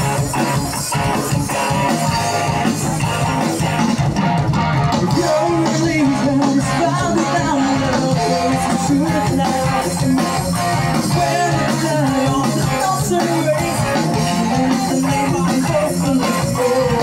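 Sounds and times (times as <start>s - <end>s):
bass guitar: 0.0s - 17.0s
distorted electric guitars: 0.0s - 17.0s
drums: 0.0s - 17.0s
person singing: 5.0s - 17.0s.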